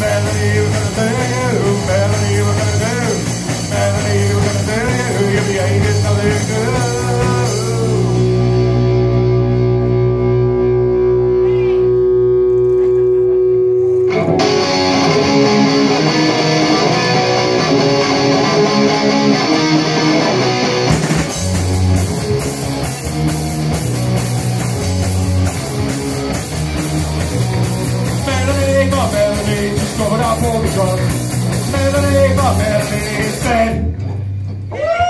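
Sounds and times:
rock band playing: 0.0s - 34.8s
drums: 0.0s - 35.0s.

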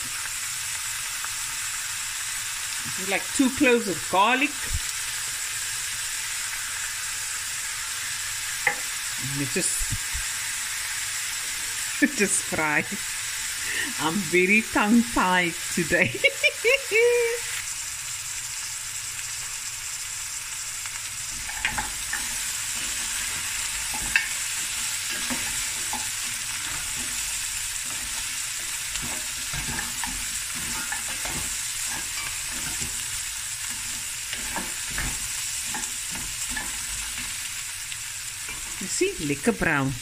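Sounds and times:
food sizzling in oil: 0.0s - 40.0s
wooden spoon scraping a pot: 21.3s - 37.5s.

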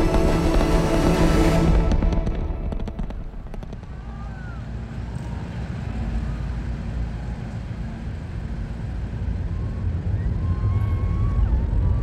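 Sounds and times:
distant rocket rumble: 0.0s - 5.1s.

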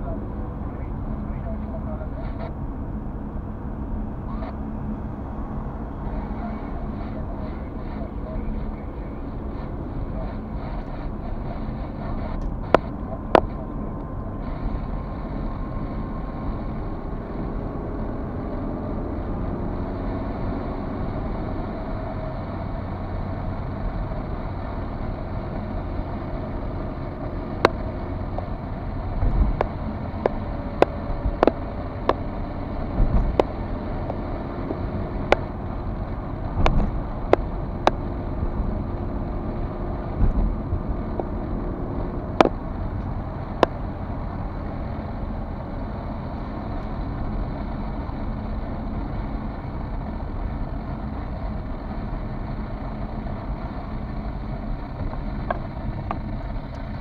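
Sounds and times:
car interior road rumble: 0.0s - 57.0s
low thumps: 32.9s - 35.8s, 40.0s - 41.4s.

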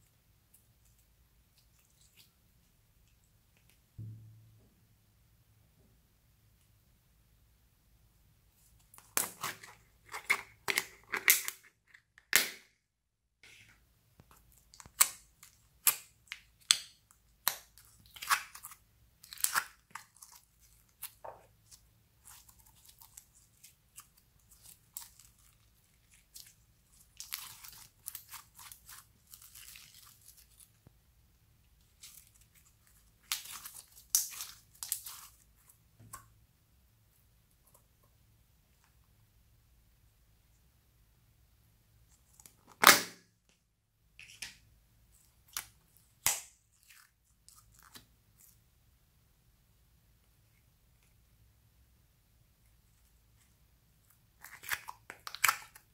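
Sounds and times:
clay stretching and tearing: 14.4s - 30.8s.

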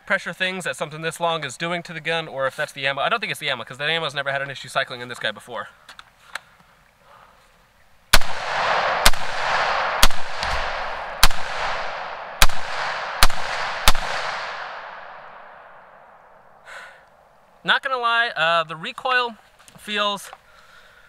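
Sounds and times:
rifle shots: 8.1s - 16.4s
rolling echo: 8.2s - 16.6s.

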